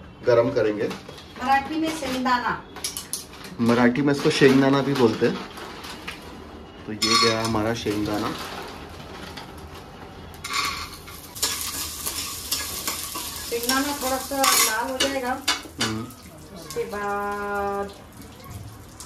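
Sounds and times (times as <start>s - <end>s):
light sizzle: 0.6s - 19.0s
spatula scraping nuts in metal pan: 10.4s - 15.2s.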